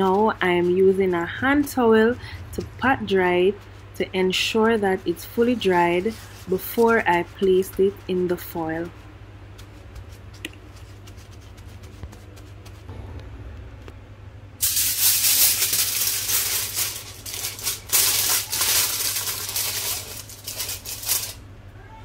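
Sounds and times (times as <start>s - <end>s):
aluminium foil crinkling: 0.0s - 8.9s, 14.6s - 21.4s.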